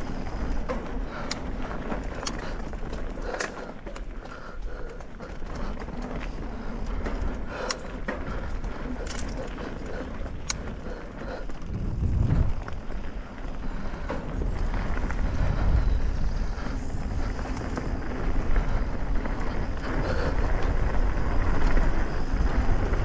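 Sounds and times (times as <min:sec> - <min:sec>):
bike tyre noise on dirt: 0:00.0 - 0:23.0
wind rumbling on microphone: 0:00.0 - 0:23.0
light clicks and rattles: 0:00.3 - 0:15.7.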